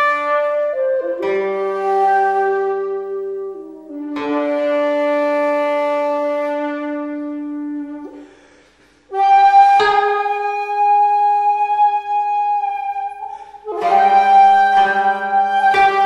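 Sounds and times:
bamboo flute long notes: 0.0s - 16.0s.

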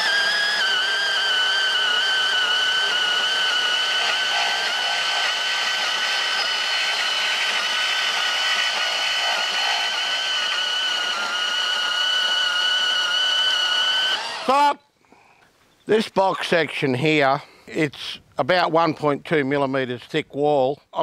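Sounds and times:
bandsaw cutting steel pipe: 0.0s - 14.7s.

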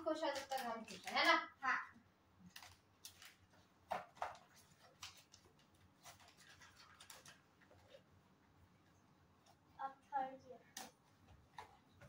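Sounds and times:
hands handling gift packaging: 0.0s - 1.4s, 2.4s - 8.2s.

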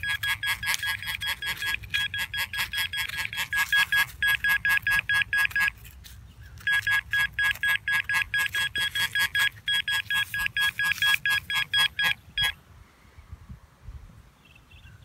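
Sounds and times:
fast electronic beeping: 0.0s - 5.7s, 6.6s - 12.5s.

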